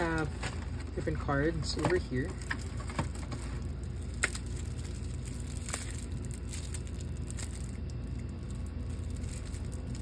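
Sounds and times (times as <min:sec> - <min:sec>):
low background hum: 0:00.0 - 0:10.0
plastic wrap clicks and crinkles: 0:00.0 - 0:10.0.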